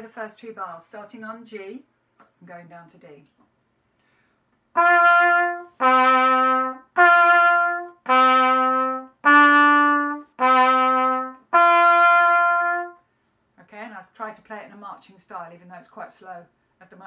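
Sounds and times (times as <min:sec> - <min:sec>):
trumpet playing slow notes: 0:04.7 - 0:13.0.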